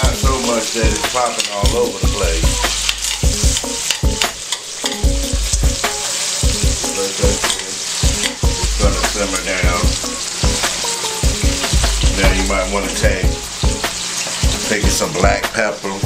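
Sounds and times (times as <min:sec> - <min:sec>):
vegetables sizzling in a skillet: 0:00.0 - 0:16.0
metal tongs scraping a pan: 0:00.4 - 0:05.1, 0:07.4 - 0:08.5.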